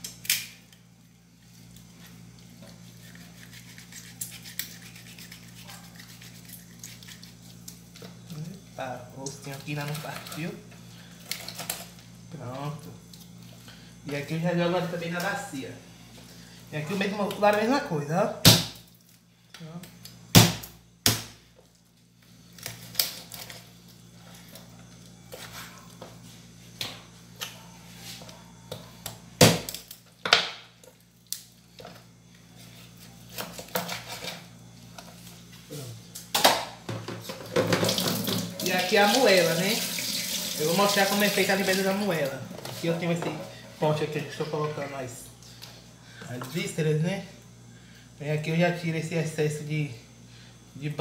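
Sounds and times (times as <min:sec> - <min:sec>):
steady low hum: 0:00.0 - 0:38.7, 0:40.4 - 0:51.0
knife clicking and scraping through chicken: 0:02.9 - 0:07.8.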